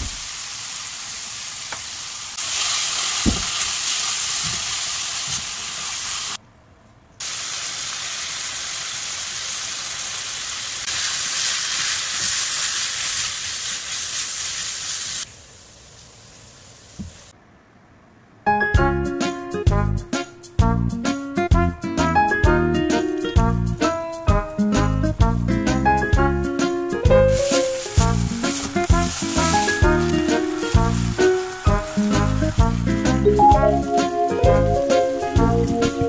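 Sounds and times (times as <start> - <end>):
vegetables sizzling in a frying pan: 0.0 - 6.4, 7.2 - 17.3, 27.2 - 33.3.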